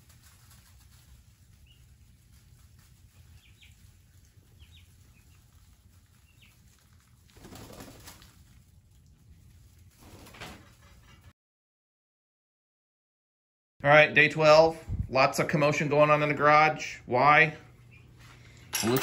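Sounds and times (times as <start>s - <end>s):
rustling: 0.0s - 11.3s
poults peeping: 0.1s - 8.2s.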